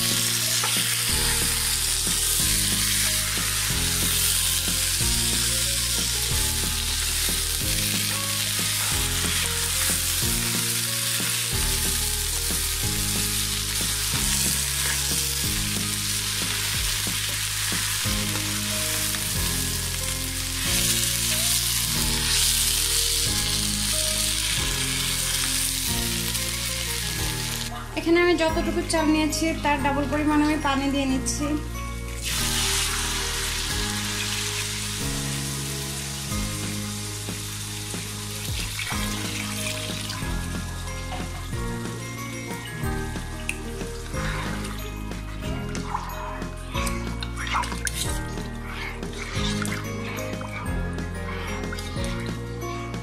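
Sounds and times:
rice sizzling in hot oil: 0:00.0 - 0:27.7, 0:32.2 - 0:45.9
spatula stirring: 0:47.2 - 0:52.4.

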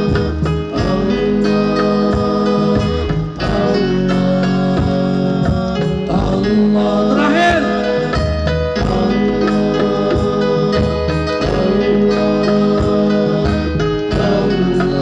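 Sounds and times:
live band music: 0:00.0 - 0:15.0.

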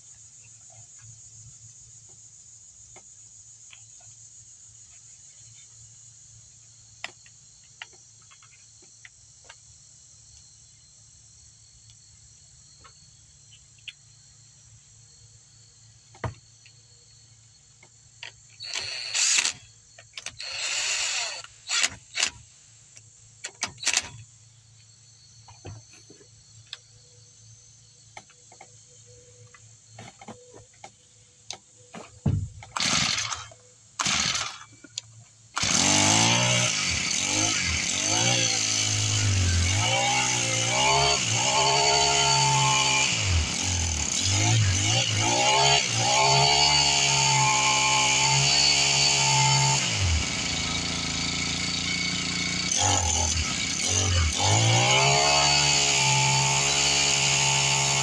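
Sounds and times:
trimmer engine running: 0:18.6 - 0:19.6, 0:20.4 - 0:22.4, 0:32.7 - 0:34.8, 0:35.6 - 0:58.0
cordless drill whirring: 0:18.6 - 0:22.4, 0:32.7 - 0:34.7, 0:35.6 - 0:58.0.

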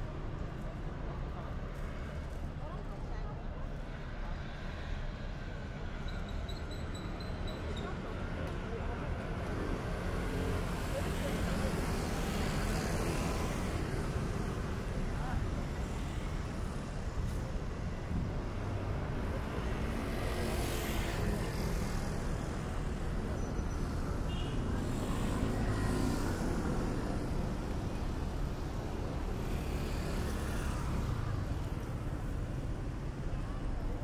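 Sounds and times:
vehicles passing by: 0:08.0 - 0:34.0.

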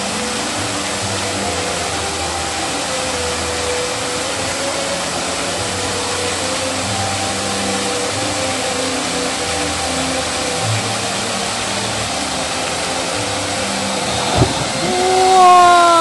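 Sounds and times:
fountain water splashing: 0:00.0 - 0:16.0.

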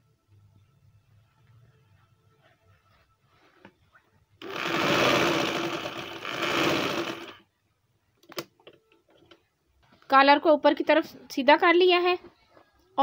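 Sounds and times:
sewing machine running: 0:04.4 - 0:07.4.

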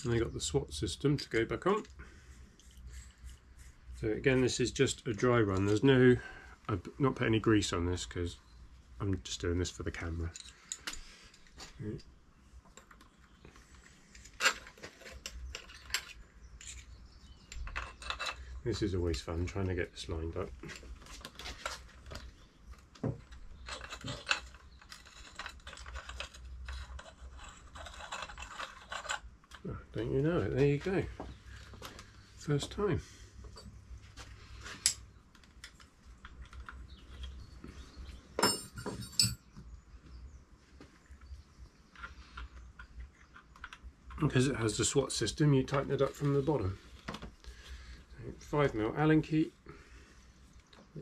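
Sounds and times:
small metal parts clinking: 0:10.2 - 0:11.6, 0:14.1 - 0:18.6, 0:20.7 - 0:29.7, 0:38.4 - 0:39.5
tools clattering with ring: 0:38.4 - 0:39.6.

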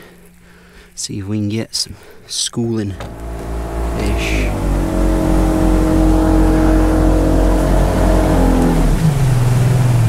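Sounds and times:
boat engine running: 0:02.8 - 0:10.0.

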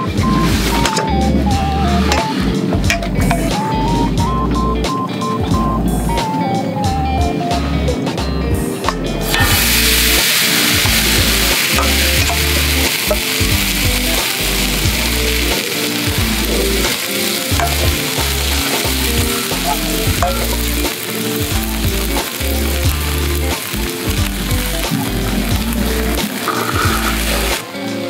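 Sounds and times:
soft music with bass: 0:00.0 - 0:28.0
food sizzling on a griddle: 0:09.2 - 0:28.0.

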